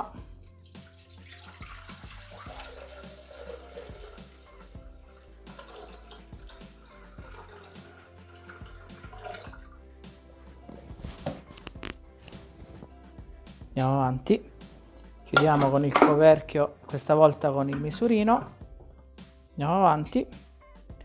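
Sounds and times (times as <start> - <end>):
water pouring into steel bowl: 0.5 - 9.9.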